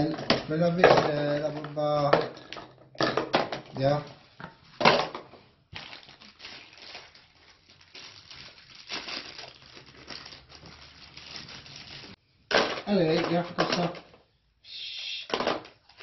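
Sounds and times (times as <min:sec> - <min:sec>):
plastic packaging crinkling: 0:05.7 - 0:12.2.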